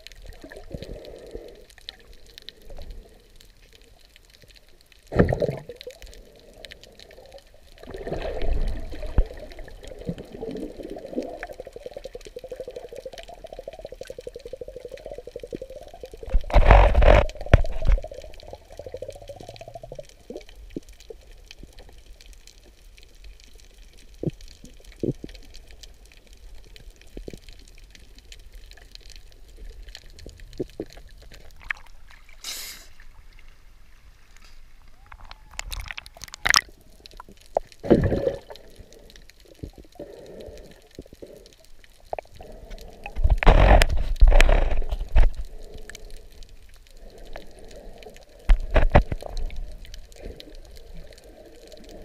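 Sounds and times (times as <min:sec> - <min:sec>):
muffled underwater hiss: 0:00.0 - 0:35.5, 0:36.8 - 0:52.0
underwater clicks and gurgles: 0:00.0 - 0:52.0
bursts of water noise: 0:07.6 - 0:21.0, 0:34.8 - 0:52.0.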